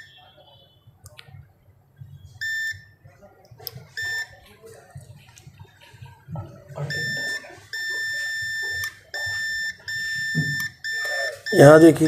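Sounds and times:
multimeter continuity beep: 0:02.0 - 0:03.0, 0:03.9 - 0:04.4, 0:06.7 - 0:12.0.

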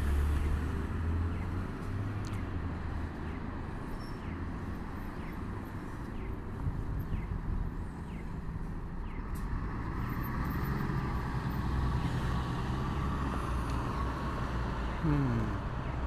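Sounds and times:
bus diesel engine driving past: 0:00.0 - 0:02.5, 0:07.8 - 0:16.0.

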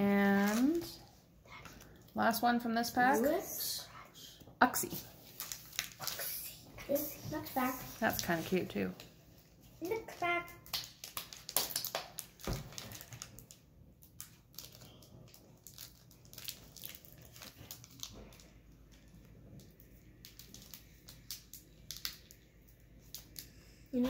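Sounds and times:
foil wrapper crinkling: 0:00.3 - 0:01.0, 0:05.2 - 0:06.4, 0:09.8 - 0:23.5.

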